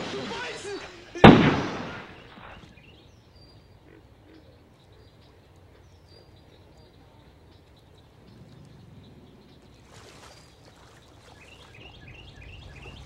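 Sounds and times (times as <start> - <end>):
handgun shot tail: 0.0 - 2.7
faint high bird chirps: 1.9 - 13.0.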